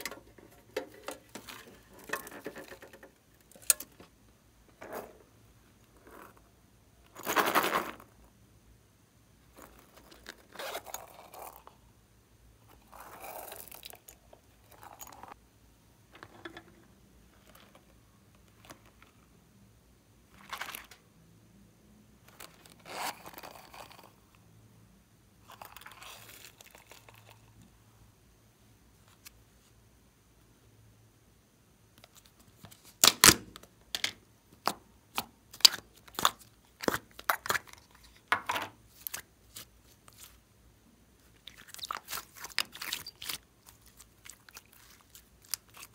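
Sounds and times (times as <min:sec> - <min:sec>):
slime crackling and crunching: 0:41.3 - 0:45.9.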